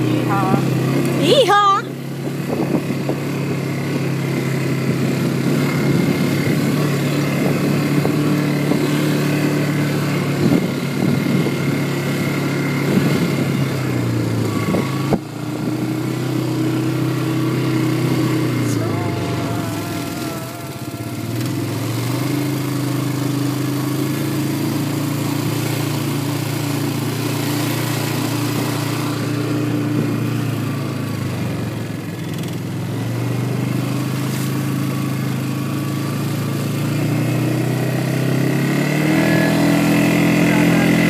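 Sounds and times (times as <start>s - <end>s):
quad bike engine running: 0.0s - 41.0s
wind noise: 2.4s - 3.2s, 10.4s - 11.6s.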